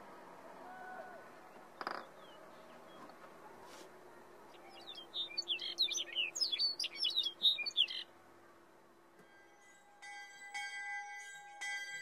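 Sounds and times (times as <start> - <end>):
songbird chirping and trilling: 0.6 - 3.3, 4.0 - 8.6.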